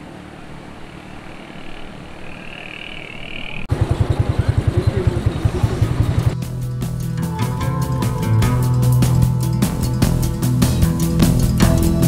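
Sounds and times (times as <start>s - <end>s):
rapid low throbbing: 4.5s - 12.0s.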